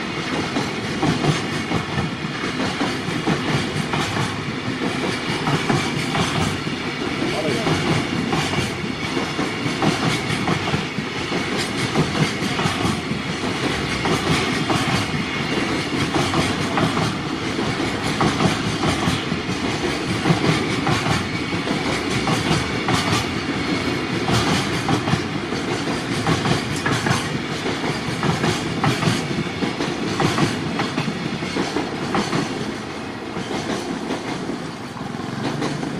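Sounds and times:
train wheels clickety-clack: 0.0 - 35.9.

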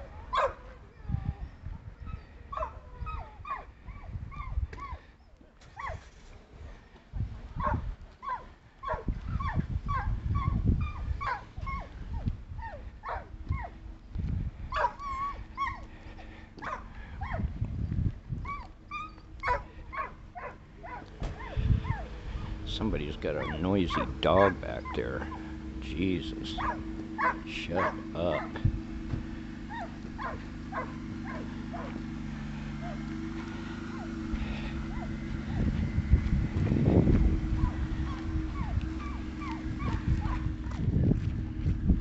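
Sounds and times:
dog yipping and whining: 0.1 - 6.2, 7.6 - 13.8, 14.7 - 15.9, 16.6 - 17.5, 18.4 - 22.6, 23.4 - 25.5, 26.6 - 28.6, 29.7 - 31.9, 37.5 - 40.5
low rumble: 9.0 - 42.0.

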